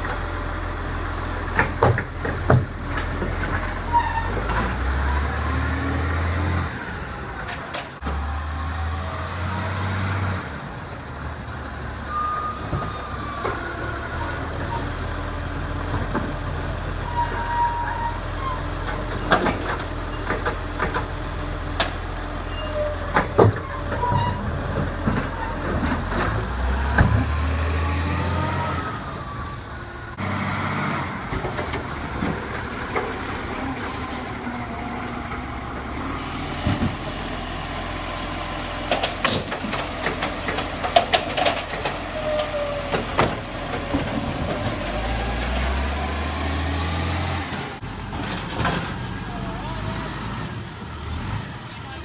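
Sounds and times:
garbage truck engine running: 0:10.5 - 0:51.8.

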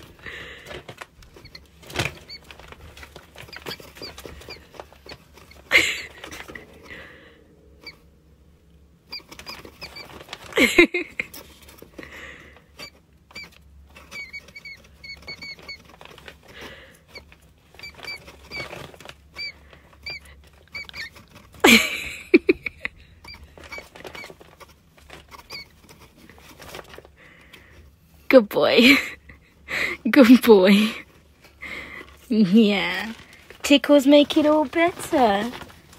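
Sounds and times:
rat squeaking: 0:01.2 - 0:06.8, 0:07.7 - 0:08.1, 0:09.0 - 0:10.5, 0:12.8 - 0:21.9, 0:23.1 - 0:27.0.

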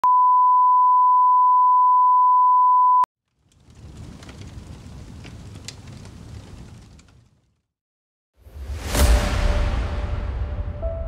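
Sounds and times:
low rumbling noise with crackles: 0:03.2 - 0:07.7.

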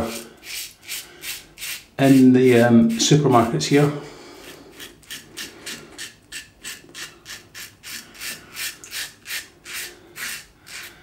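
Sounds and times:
razor scraping stubble: 0:04.4 - 0:11.0.

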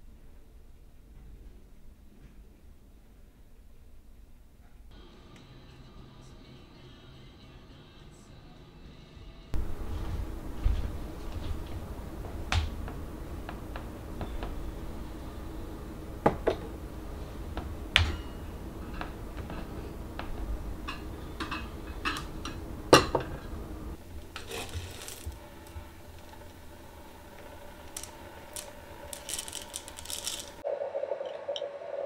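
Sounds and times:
kitchen items clinking on counter: 0:24.4 - 0:25.4, 0:27.8 - 0:30.6
coffee beans rattling in glass jar: 0:24.4 - 0:26.5, 0:27.6 - 0:30.6.

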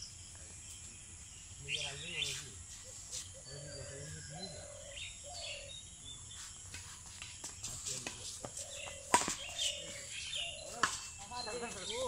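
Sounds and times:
bird chirps: 0:00.0 - 0:12.0
shoes on concrete: 0:06.3 - 0:11.1
racket hitting shuttlecock: 0:08.0 - 0:09.7.

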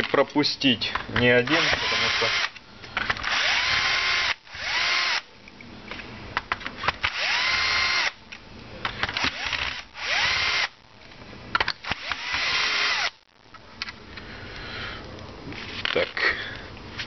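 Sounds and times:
cordless drill whining: 0:01.5 - 0:02.5, 0:03.2 - 0:05.3, 0:07.0 - 0:08.2, 0:09.2 - 0:10.8, 0:11.8 - 0:13.2.

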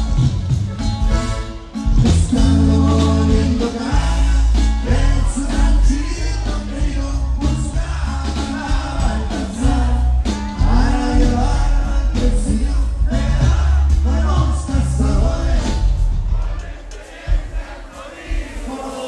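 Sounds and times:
heavy bass line: 0:00.0 - 0:16.6
live band playing: 0:00.0 - 0:19.0
person singing: 0:02.1 - 0:15.8.

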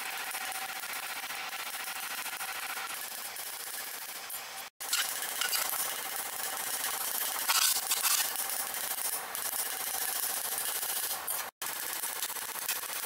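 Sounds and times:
steel plate scraping on metal: 0:02.1 - 0:06.1, 0:06.8 - 0:08.6.

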